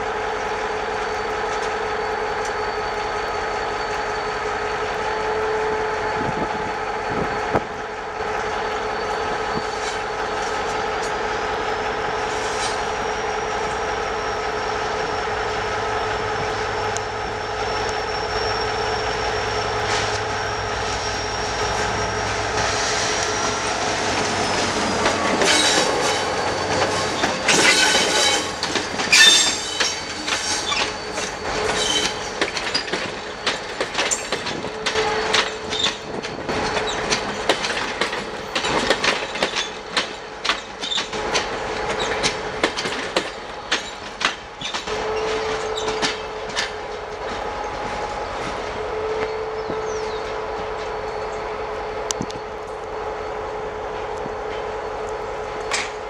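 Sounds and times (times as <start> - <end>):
diesel locomotive whining: 0.0 - 56.0
wheel squeals: 16.7 - 37.6, 38.4 - 47.0
train wheels clicking over rail joints: 21.5 - 51.5, 53.9 - 56.0.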